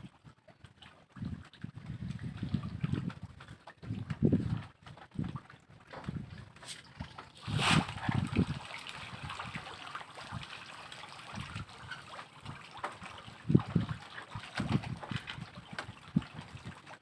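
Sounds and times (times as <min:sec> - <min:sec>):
fish splashing at surface: 0:06.6 - 0:16.8
feed pellets splashing into water: 0:07.4 - 0:14.7.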